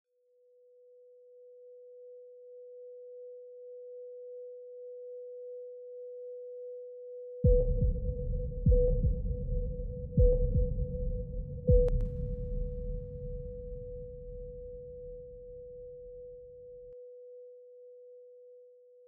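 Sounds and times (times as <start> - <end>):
heart monitor flatline beep: 7.4 - 12.0.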